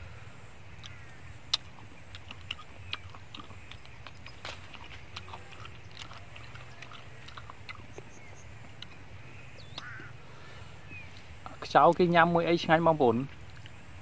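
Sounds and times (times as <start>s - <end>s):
soft chewing: 0.7s - 10.1s, 13.2s - 13.8s.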